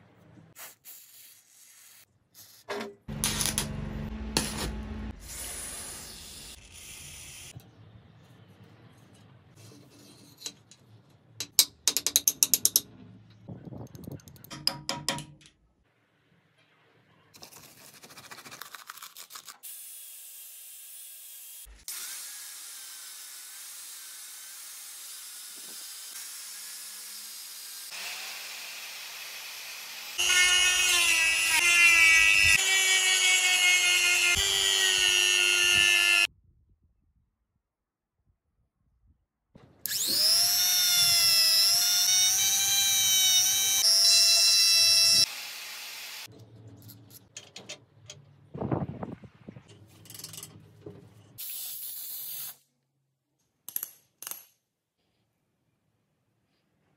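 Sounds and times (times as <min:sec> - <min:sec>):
bench grinder humming: 0:28.0 - 0:36.3
rotary tool whining: 0:39.9 - 0:46.3.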